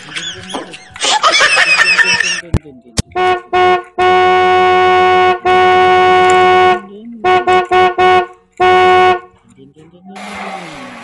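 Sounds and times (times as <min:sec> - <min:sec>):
horn honking: 0:03.1 - 0:09.4.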